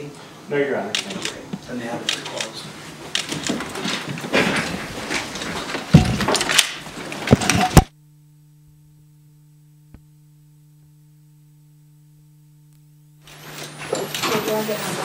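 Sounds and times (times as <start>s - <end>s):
steady low hum: 0.0s - 14.9s
handling noise rustling and knocks: 3.3s - 7.9s.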